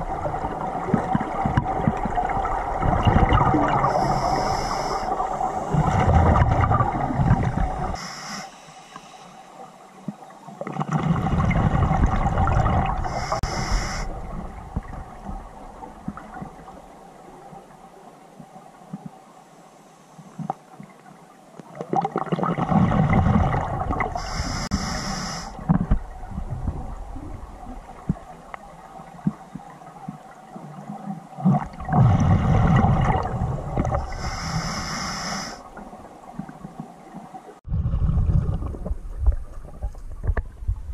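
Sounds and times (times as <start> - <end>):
exhaled bubbles rumbling underwater: 0.0 - 8.0, 10.0 - 18.0, 21.7 - 40.9
regulator hiss: 3.9 - 5.7, 7.9 - 9.6, 13.1 - 14.2, 24.2 - 25.6, 34.1 - 35.7.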